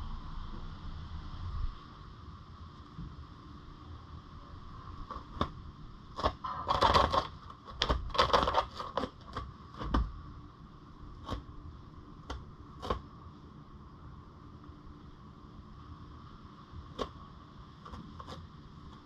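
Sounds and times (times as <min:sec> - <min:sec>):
rabbit scratching cardboard: 0:04.9 - 0:10.2, 0:10.9 - 0:13.3, 0:16.4 - 0:19.0.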